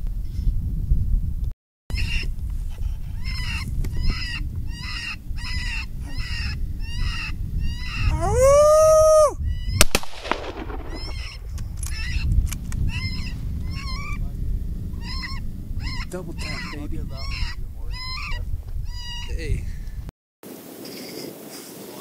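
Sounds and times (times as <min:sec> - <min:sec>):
rifle shots: 0:09.8 - 0:11.5.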